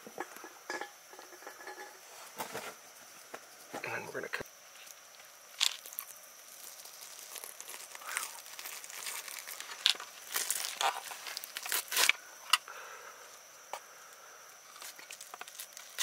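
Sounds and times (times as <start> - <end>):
sharp crackles and clicks: 4.8 - 12.2.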